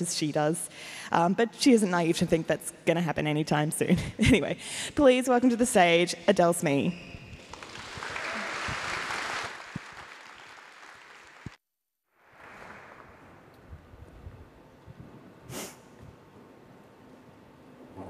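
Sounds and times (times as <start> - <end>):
audience applauding: 7.4 - 11.6, 12.3 - 13.4.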